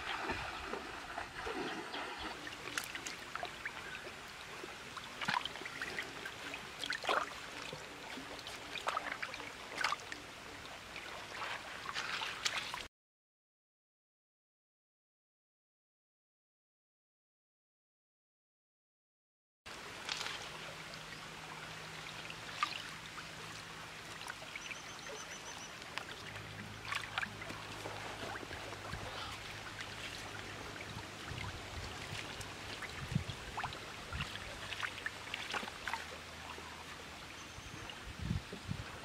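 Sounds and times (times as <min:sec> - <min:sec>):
water trickling over stones: 0:00.0 - 0:12.9, 0:19.7 - 0:38.8
small splashes and clicks: 0:02.6 - 0:03.6, 0:05.2 - 0:06.0, 0:06.8 - 0:07.8, 0:08.4 - 0:10.2, 0:11.4 - 0:12.9, 0:20.0 - 0:20.6, 0:25.8 - 0:28.6, 0:33.6 - 0:36.1.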